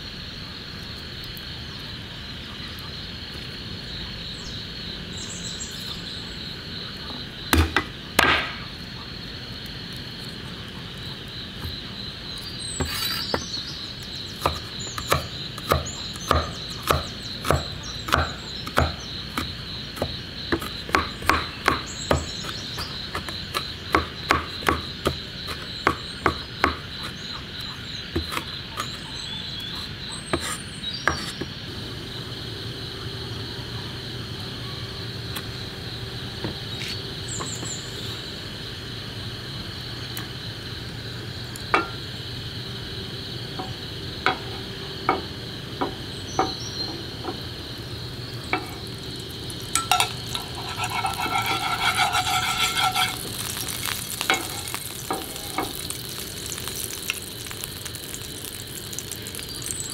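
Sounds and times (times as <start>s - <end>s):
insects chirping: 0.0s - 59.9s
cleaver chopping on wooden board: 7.5s - 8.6s, 14.4s - 26.8s.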